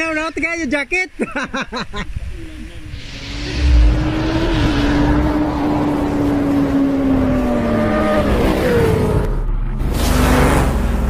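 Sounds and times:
motorcycle engine: 0:02.9 - 0:11.0.

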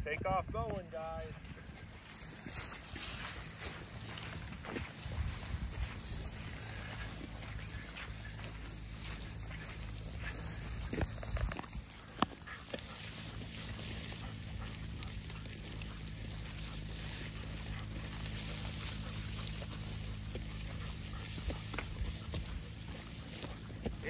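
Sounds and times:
dog-training whistle toots: 0:05.0 - 0:05.4, 0:07.7 - 0:09.6, 0:14.6 - 0:15.8, 0:21.1 - 0:22.1, 0:23.2 - 0:23.9.

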